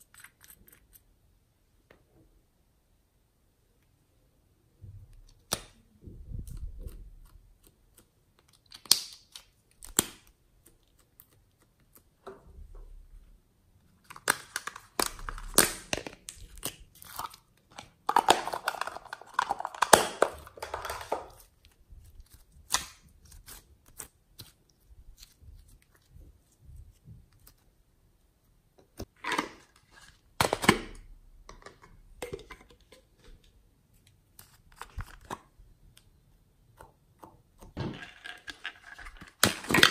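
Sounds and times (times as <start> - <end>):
plastic crackling and crinkling: 14.0 - 27.6, 37.8 - 39.9.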